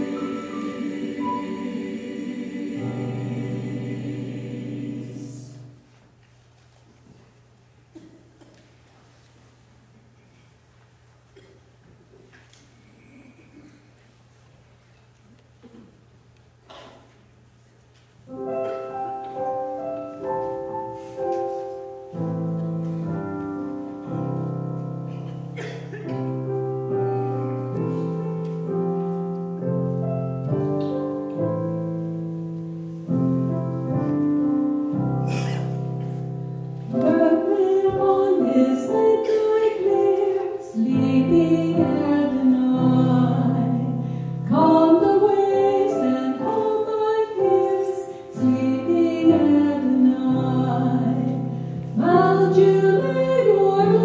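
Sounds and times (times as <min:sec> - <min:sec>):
piano playing slow chords: 0:00.0 - 0:05.8, 0:18.3 - 0:54.0
voices singing: 0:00.0 - 0:05.8.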